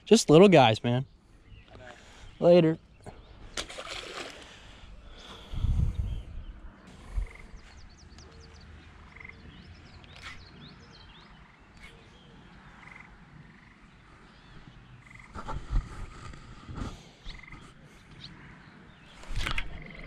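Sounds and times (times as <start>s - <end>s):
birds chirping: 0.0s - 20.0s
frogs croaking: 6.8s - 15.8s, 17.2s - 20.0s.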